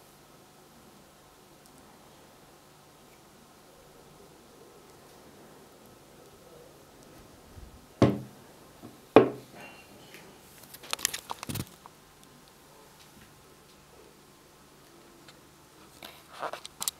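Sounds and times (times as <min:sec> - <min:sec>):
glass jar thudding on wood: 0:09.2 - 0:09.4.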